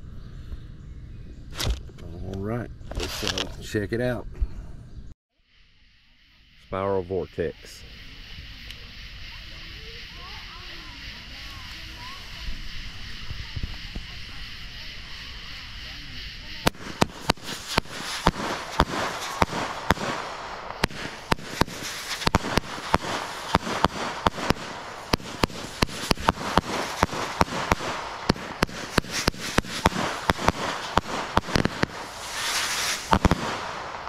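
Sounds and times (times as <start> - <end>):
firework hiss: 5.4 - 34.0
firework pops: 11.4 - 15.4, 16.5 - 34.0.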